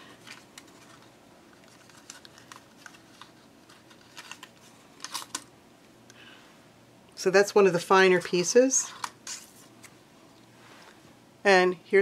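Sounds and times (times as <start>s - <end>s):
paper rustling: 0.0s - 5.4s.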